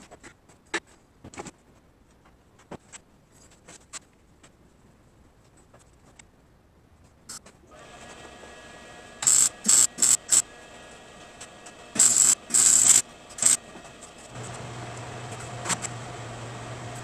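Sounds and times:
welder arc bursts: 9.2s - 10.4s, 12.0s - 13.6s.

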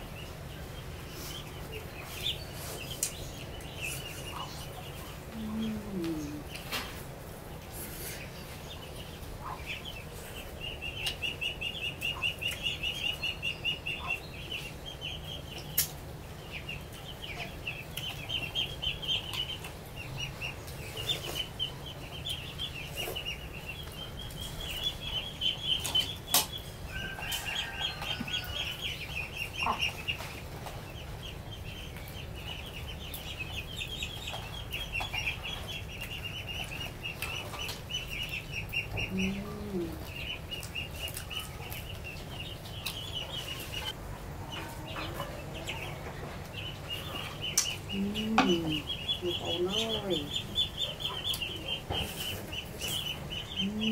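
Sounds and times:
animals chirring: 32.4s - 53.9s.

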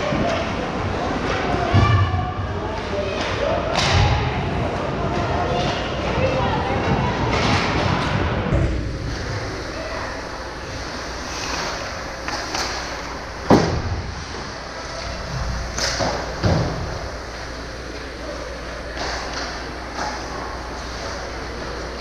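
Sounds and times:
arena noise: 0.0s - 22.0s
hockey sticks and puck knocking: 11.4s - 13.8s.

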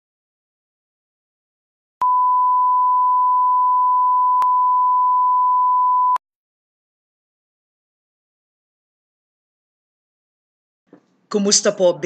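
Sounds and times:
sine test tone: 2.0s - 6.2s.

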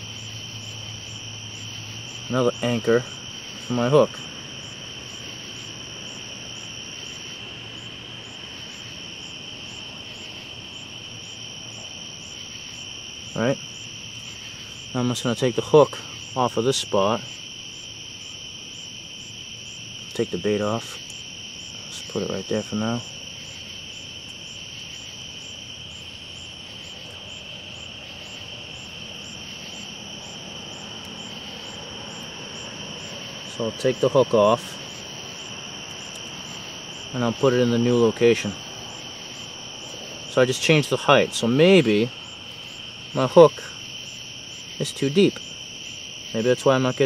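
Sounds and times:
crickets trilling: 0.0s - 47.0s
high-pitched insect chirp: 0.0s - 47.0s.

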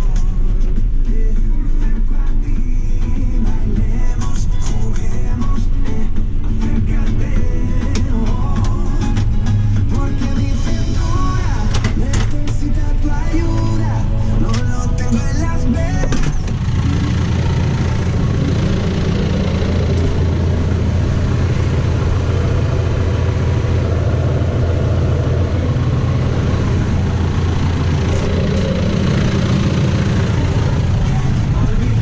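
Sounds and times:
tractor diesel engine running: 0.0s - 32.0s.

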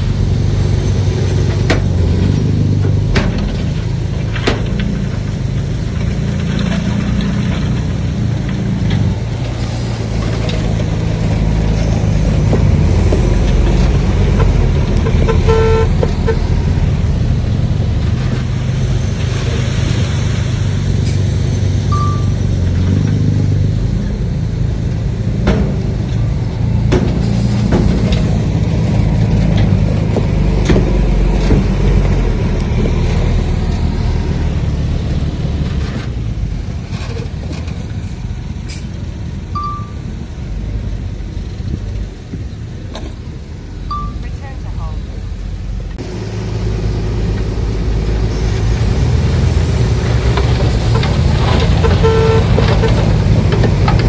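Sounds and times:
bulldozer diesel engine running: 0.0s - 54.0s
vehicle horn toot: 15.0s - 16.4s, 51.8s - 52.9s
sharp metallic knocks: 25.4s - 28.6s.

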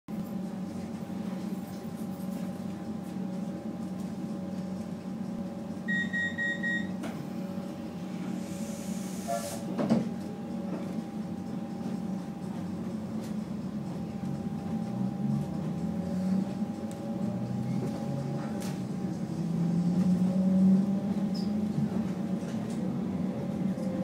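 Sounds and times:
train equipment hum: 0.2s - 24.0s
high beeps: 5.9s - 6.9s.

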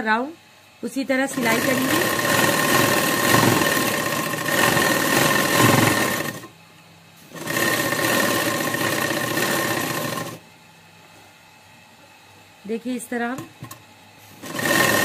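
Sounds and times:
sewing machine stitching: 1.3s - 6.5s, 7.3s - 10.4s, 14.4s - 15.0s.

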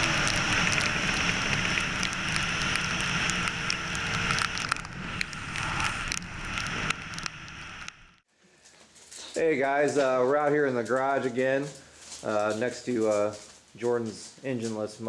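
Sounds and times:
tyre hiss on wet road: 0.0s - 7.8s
sharp crackling clicks: 0.0s - 8.3s
wind: 0.0s - 15.0s.

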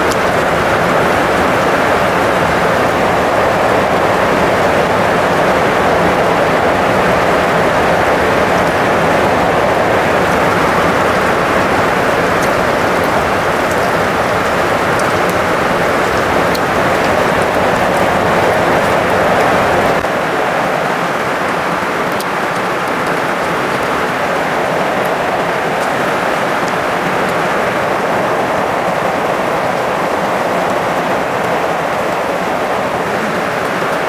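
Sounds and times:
loud steady rushing noise: 0.0s - 34.0s.

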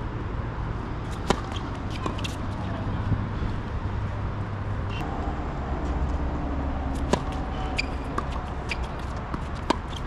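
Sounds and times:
tennis ball struck by racket: 1.1s - 2.6s, 6.9s - 10.0s.

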